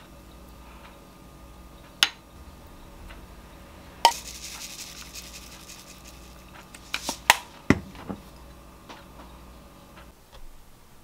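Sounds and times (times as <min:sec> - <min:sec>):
wooden spoon knocking on pan: 0:07.7 - 0:08.2.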